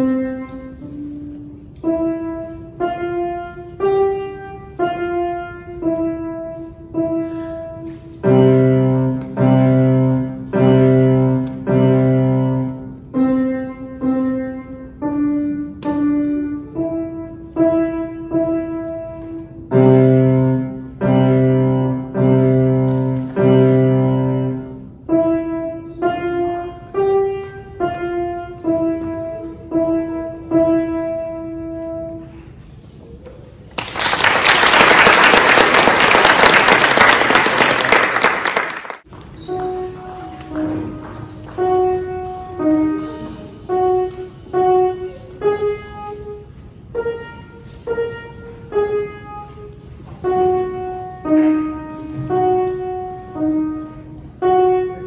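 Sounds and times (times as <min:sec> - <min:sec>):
grand piano playing: 0:00.0 - 0:32.8, 0:34.0 - 0:55.0
audience applauding: 0:33.8 - 0:39.0.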